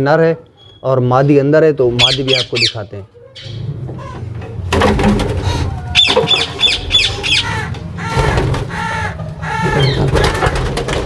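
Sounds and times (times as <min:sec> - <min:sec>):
parakeets squawking: 0:01.9 - 0:04.3, 0:06.0 - 0:10.6
wings flapping: 0:09.6 - 0:11.0.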